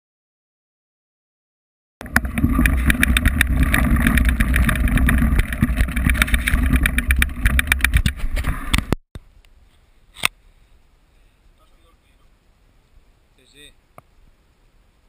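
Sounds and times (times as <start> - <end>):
bike rattling over stones: 2.0 - 8.9
wind rumble on microphone: 2.0 - 9.0.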